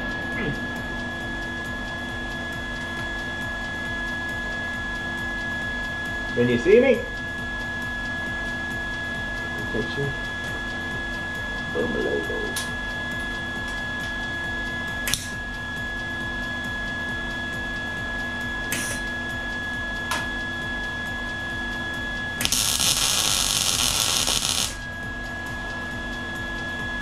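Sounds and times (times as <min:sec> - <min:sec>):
steady hum: 0:00.0 - 0:03.3, 0:22.2 - 0:26.3
welding crackling tacks: 0:22.4 - 0:24.8
sizzling weld: 0:22.4 - 0:24.9.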